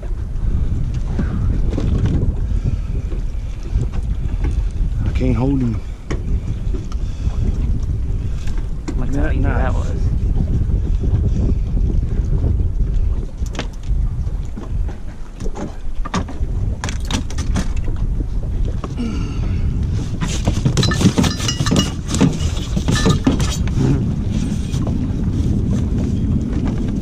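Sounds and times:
wind buffeting microphone: 0.0s - 27.0s
fishing gear clattering: 20.6s - 23.7s
metallic clinks of anchor chain: 20.8s - 23.3s.

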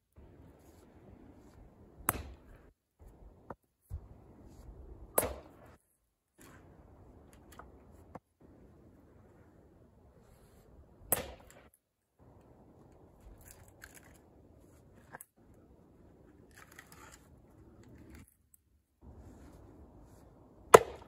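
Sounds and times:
rustle of wood handled: 0.2s - 1.9s, 12.3s - 20.7s
axe striking log: 2.0s - 2.6s, 5.2s - 5.6s, 11.1s - 11.6s, 20.7s - 21.0s.

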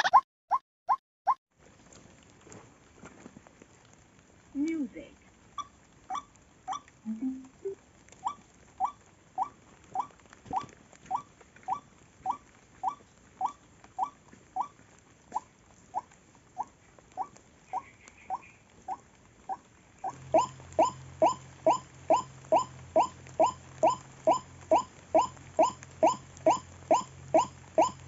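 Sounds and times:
bird calling rising notes: 20.0s - 28.0s.

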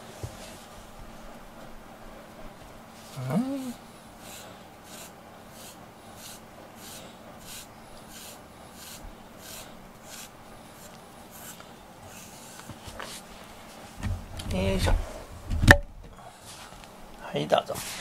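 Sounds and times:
cat rasping on rubber brush: 4.2s - 13.4s.

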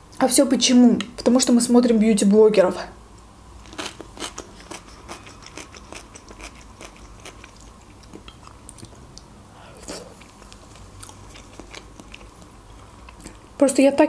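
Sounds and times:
wet chewing mouth sounds: 3.6s - 13.5s.

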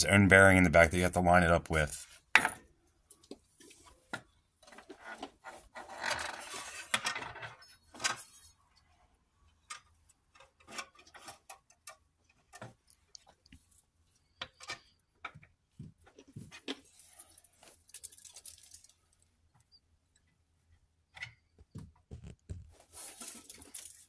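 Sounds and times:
metal rubbing and scraping: 4.8s - 7.2s.

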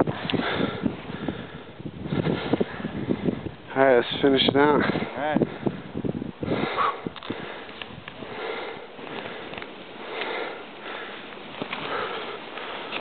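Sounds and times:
person breathing hard: 0.1s - 3.6s, 4.8s - 13.0s
skis hissing through snow: 7.6s - 13.0s.

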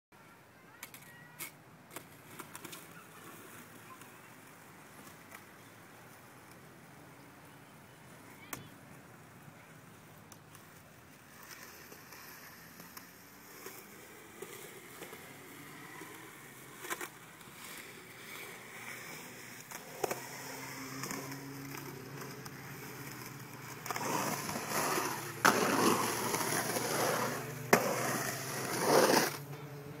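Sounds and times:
skateboard wheels rolling on concrete: 0.2s - 30.0s
skateboard clacking on concrete: 10.3s - 29.5s.

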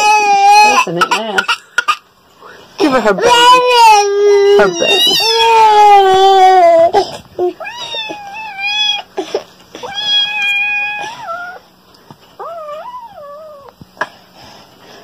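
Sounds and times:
kitten meowing: 9.8s - 11.6s.

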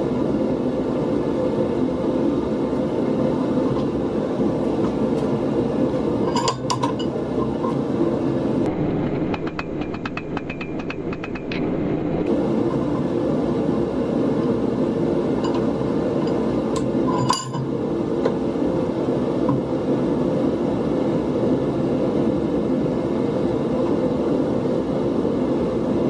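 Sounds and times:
low workshop drone: 0.0s - 26.0s
hammer tapping on anvil: 9.3s - 11.6s.

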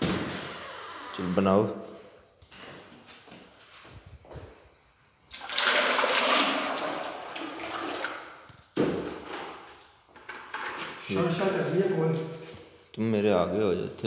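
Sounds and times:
paste pouring from a bucket: 5.3s - 9.7s.

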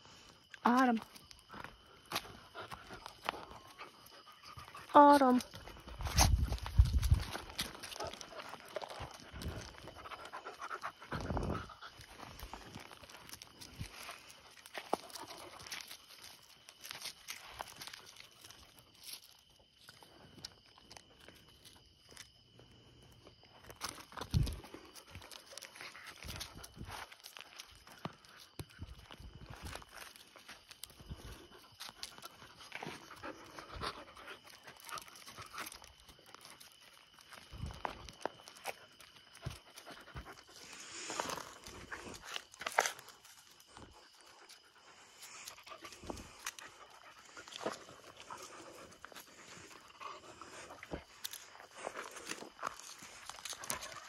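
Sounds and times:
paws clicking on gravel: 0.5s - 54.0s
footsteps on gravel: 1.6s - 18.1s
puppies panting: 1.6s - 18.6s, 28.9s - 54.0s.

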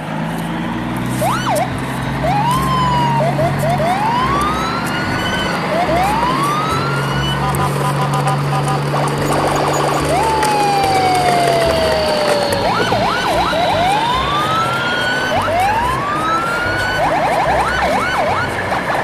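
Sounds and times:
steady background noise: 0.0s - 19.0s
electronic siren-like effects: 0.5s - 19.0s.

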